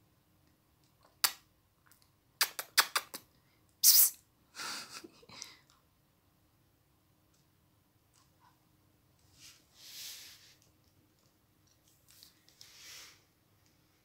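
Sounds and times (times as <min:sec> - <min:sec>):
short hiss: 0:03.8 - 0:04.2.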